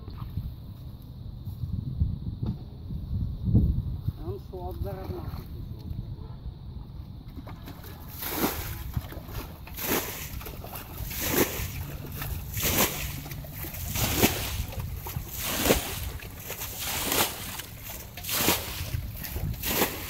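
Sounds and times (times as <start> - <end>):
water splashing from bucket: 7.3 - 20.0.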